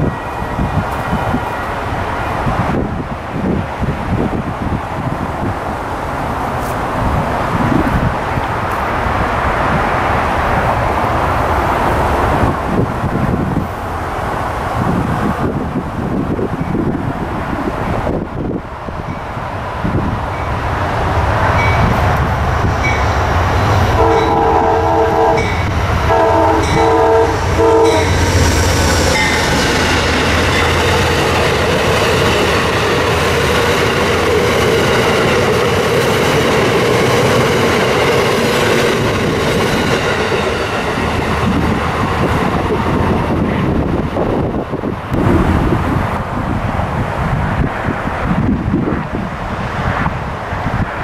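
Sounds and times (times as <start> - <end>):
locomotive air horn: 24.0 - 28.5
train wheels clattering on rails: 25.2 - 45.4.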